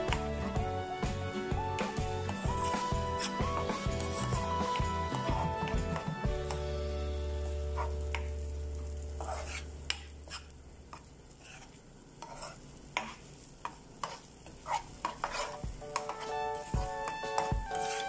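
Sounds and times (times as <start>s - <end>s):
light sizzle of frying: 0.0s - 18.0s
wooden spatula scraping a pan: 1.8s - 6.6s, 7.6s - 8.3s, 9.1s - 18.0s.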